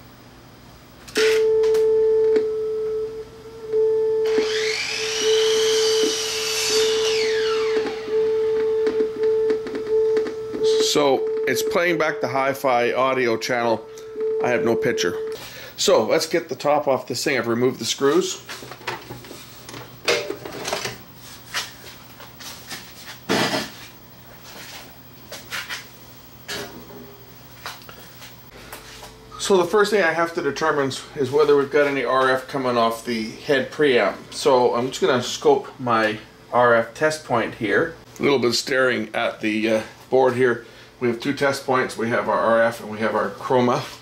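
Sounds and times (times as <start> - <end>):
steady tone: 2.4 - 17.8
hissing pitch sweep: 4.3 - 9.0.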